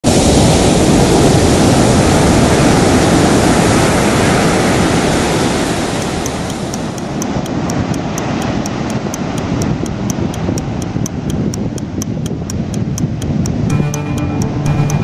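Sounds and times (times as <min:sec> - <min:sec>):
ocean surf breaking waves: 0:00.1 - 0:09.9
faint high ticks: 0:06.0 - 0:15.0.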